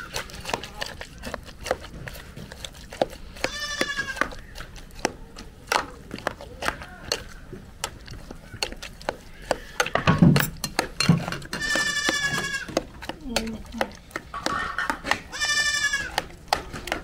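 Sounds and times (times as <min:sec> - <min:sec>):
young goat bleating: 0:03.4 - 0:04.5, 0:11.6 - 0:12.8, 0:15.2 - 0:16.2
metal ladle scraping cooking pot: 0:07.0 - 0:16.2.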